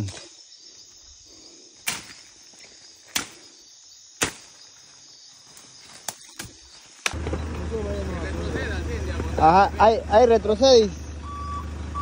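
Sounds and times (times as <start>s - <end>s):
insects trilling: 0.0s - 11.9s
machete chopping tree trunk: 1.8s - 2.2s, 3.1s - 3.5s, 4.2s - 4.6s, 6.1s - 7.2s.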